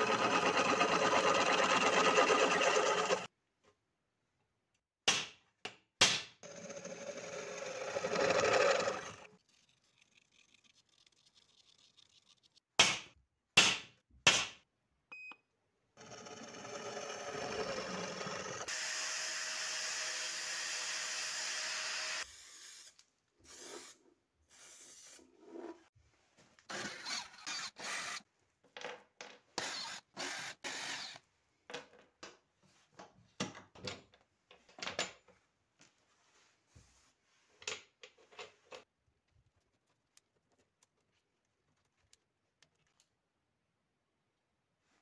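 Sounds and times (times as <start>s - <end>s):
cordless drill drilling plastic: 0.0s - 3.3s
grinding wheel on steel: 0.0s - 3.3s, 16.0s - 18.7s.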